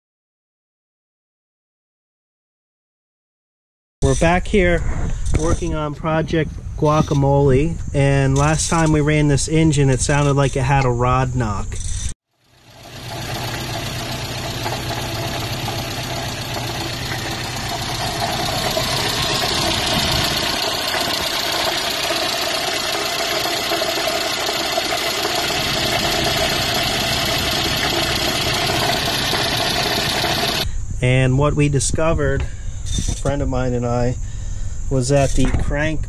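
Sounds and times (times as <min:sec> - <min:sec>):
engine idling with knock: 0:12.4 - 0:30.7.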